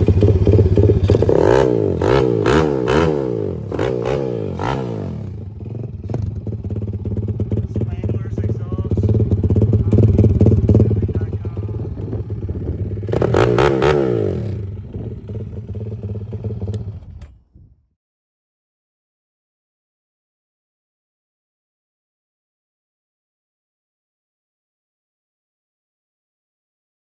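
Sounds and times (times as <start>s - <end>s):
small engine revving and idling: 0.0s - 17.3s.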